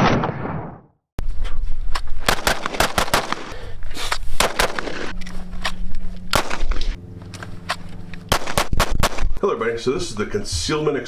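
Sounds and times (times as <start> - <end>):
pistol shots outdoors: 2.2 - 3.6, 4.4 - 5.1, 6.2 - 7.0, 8.2 - 9.4.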